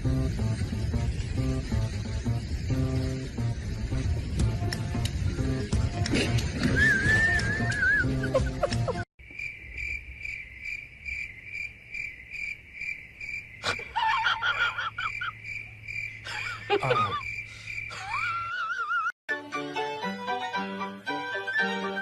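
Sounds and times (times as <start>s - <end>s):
music: 0.0s - 9.0s, 19.3s - 22.0s
cricket chirping trill: 0.0s - 19.1s.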